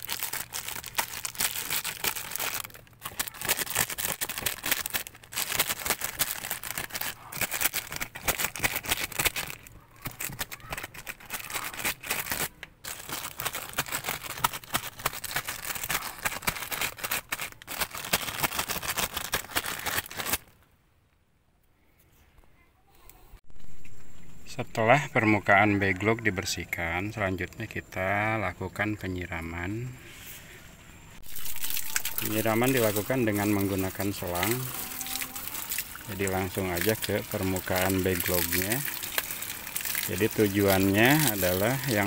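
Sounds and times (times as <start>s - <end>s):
plastic bags crinkling: 0.0s - 20.6s, 31.2s - 42.0s.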